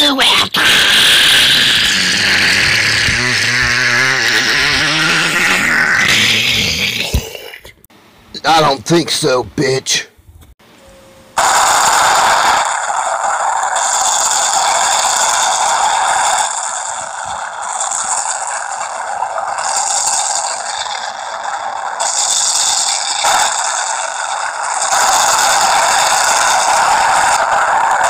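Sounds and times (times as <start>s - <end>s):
fiery blast rushing noise: 11.4s - 18.6s.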